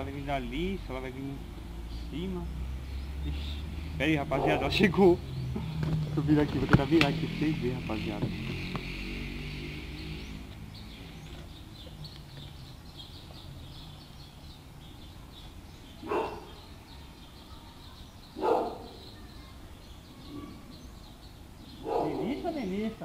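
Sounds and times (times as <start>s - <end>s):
faint bird chirping: 0.0s - 23.0s
low street background noise: 0.0s - 23.0s
dog barking: 4.3s - 4.8s, 16.0s - 16.6s, 18.4s - 19.0s, 21.8s - 22.4s.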